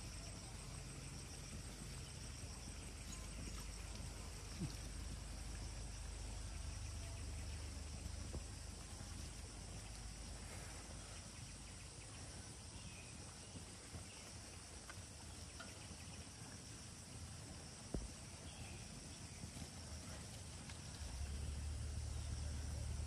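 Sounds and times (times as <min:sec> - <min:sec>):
insects chirping: 0:00.0 - 0:23.0
low rumble: 0:20.6 - 0:23.0.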